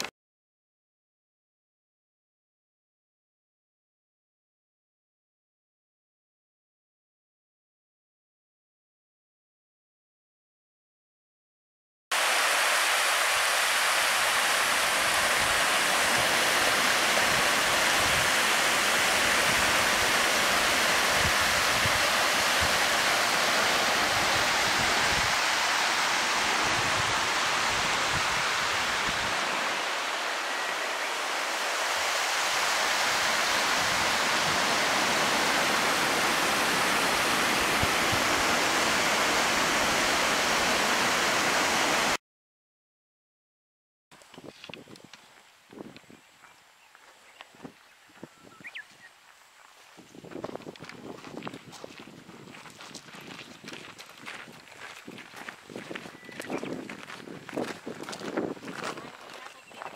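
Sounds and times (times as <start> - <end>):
running water rushing: 12.1 - 42.2, 48.9 - 59.9.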